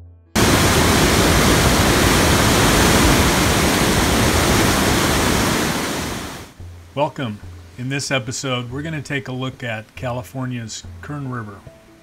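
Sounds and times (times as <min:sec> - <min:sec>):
whitewater rushing: 0:00.4 - 0:06.6.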